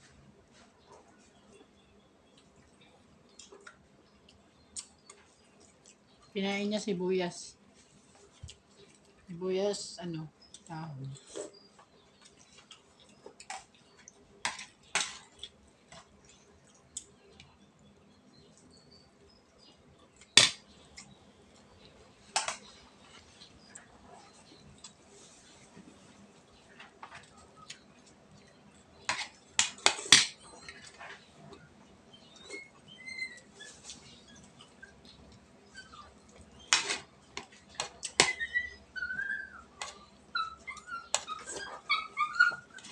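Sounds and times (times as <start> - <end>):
chewing: 0.6 - 6.3, 7.8 - 9.3, 10.4 - 38.2
cutlery clicking on plates: 29.1 - 30.4.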